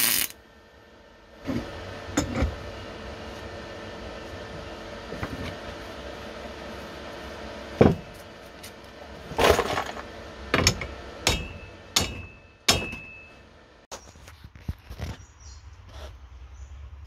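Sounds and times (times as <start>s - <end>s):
steady hum: 0.0s - 13.9s
hammer striking metal spanner: 10.5s - 13.4s.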